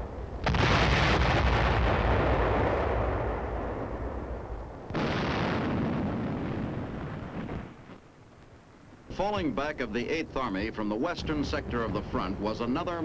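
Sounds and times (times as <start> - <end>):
explosion blasts with rolling rumble: 0.0 - 8.0.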